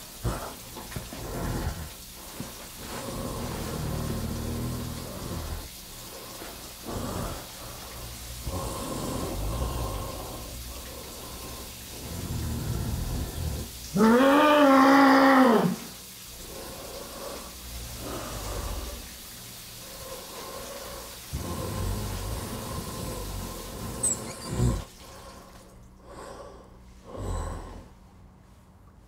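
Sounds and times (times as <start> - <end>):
heavy gasping breaths: 0.0 - 13.8, 16.4 - 19.2.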